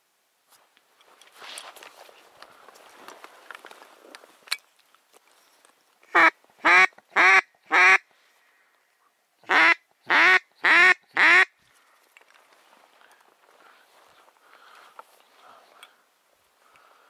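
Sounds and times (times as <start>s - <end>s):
duck call quacking: 6.1s - 8.0s, 9.5s - 11.5s.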